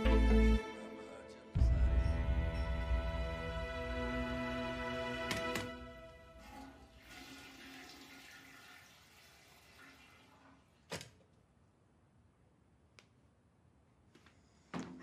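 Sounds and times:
music: 0.0s - 6.9s.

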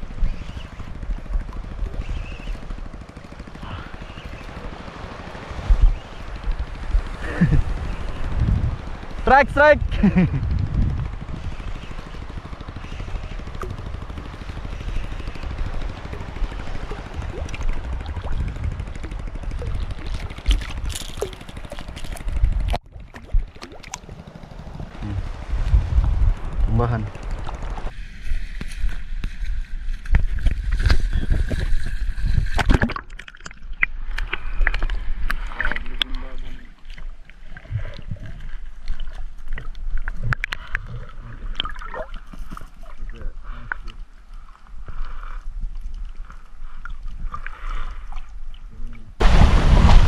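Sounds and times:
engine running: 0.0s - 28.2s
water sloshing and splashing: 15.4s - 24.9s, 31.5s - 45.0s.

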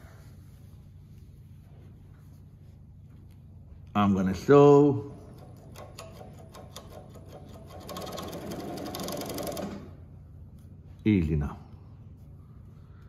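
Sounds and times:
industrial sewing machine stitching: 5.3s - 10.0s.

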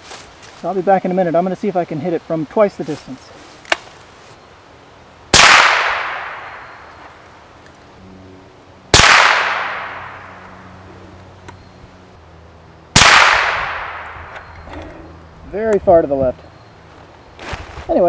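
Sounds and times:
echo ringing through woods: 5.2s - 15.5s
rifle shots: 5.3s - 6.8s, 8.9s - 10.4s, 12.9s - 14.4s.

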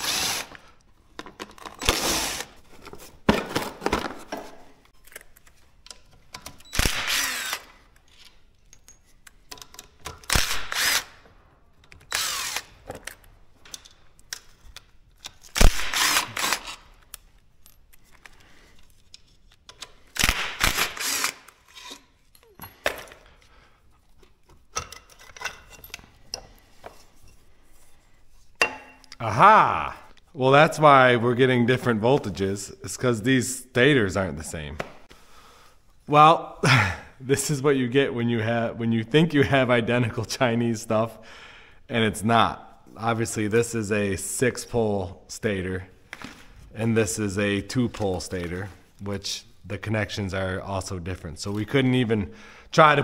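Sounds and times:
power drill bursts: 0.0s - 0.5s, 1.8s - 2.5s, 6.7s - 7.7s, 12.1s - 12.7s, 20.7s - 21.4s.

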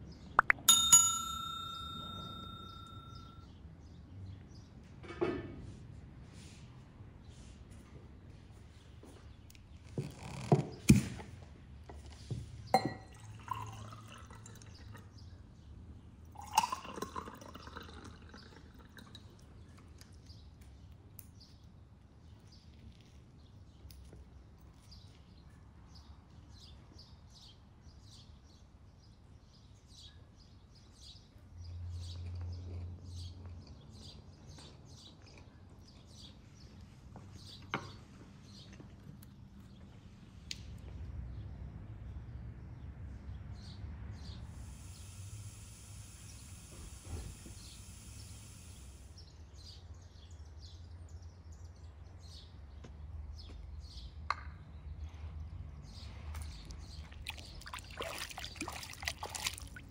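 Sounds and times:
glass and cutlery clinking: 0.4s - 3.4s, 12.8s - 14.0s
drink pouring into glasses: 12.8s - 15.2s, 16.3s - 19.6s, 56.8s - 59.9s.

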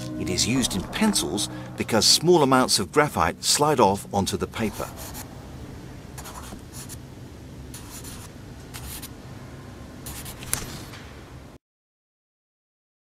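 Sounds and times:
pencil scratching on paper: 4.6s - 5.2s, 6.2s - 7.0s, 7.7s - 9.1s, 10.1s - 10.5s.

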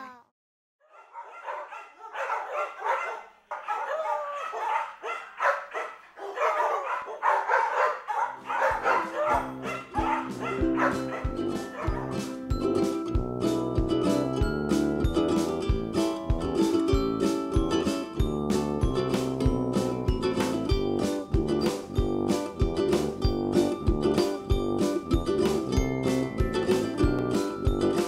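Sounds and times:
dogs barking and yipping: 0.8s - 12.5s
music with steady beat: 8.7s - 28.0s.

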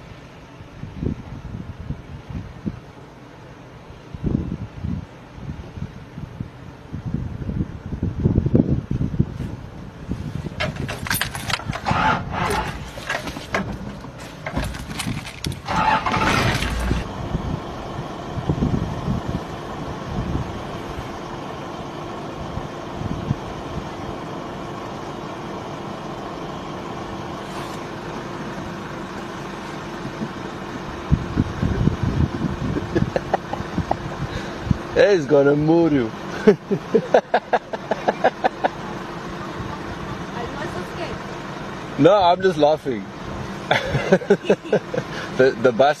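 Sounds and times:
vehicle engine idling: 0.0s - 46.0s
loud irregular noise: 10.5s - 24.3s.

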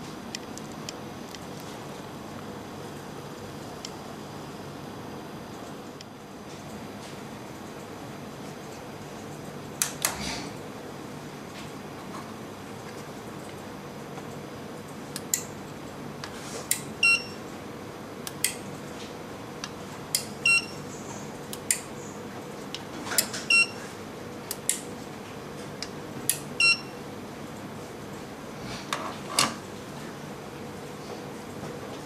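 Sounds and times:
short electronic beeps: 17.0s - 17.4s, 20.4s - 20.8s, 23.5s - 23.8s, 26.6s - 26.9s.

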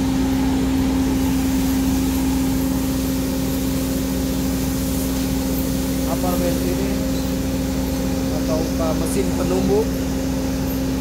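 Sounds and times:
blower motor humming drone: 0.0s - 11.0s.

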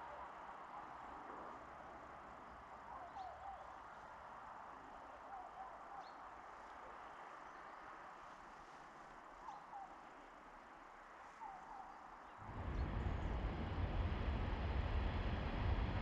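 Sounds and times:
loud low rumbling noise: 12.4s - 16.0s.

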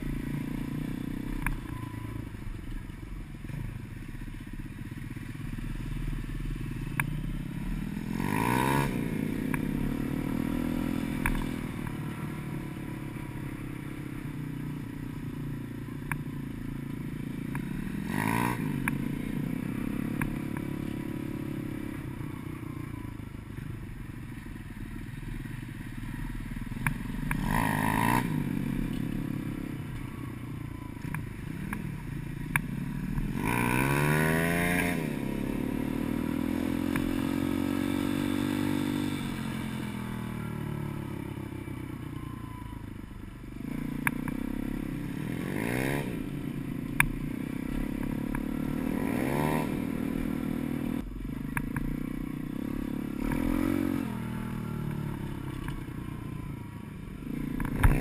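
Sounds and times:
dirt bike engine revving: 7.7s - 13.0s, 17.5s - 22.0s, 27.1s - 29.6s, 33.0s - 41.0s, 43.6s - 51.1s, 51.8s - 55.9s, 57.2s - 58.0s.

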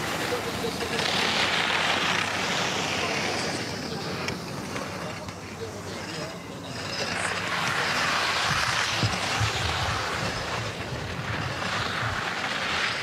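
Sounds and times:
steady rushing outdoor noise: 0.0s - 13.0s
low rumbles and thumps: 8.4s - 12.4s.

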